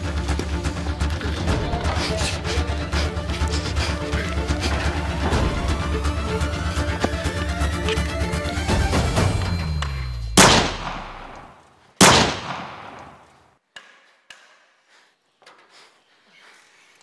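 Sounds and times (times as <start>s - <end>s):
soundtrack music: 0.0s - 11.3s
gunshots with echo: 10.4s - 13.3s.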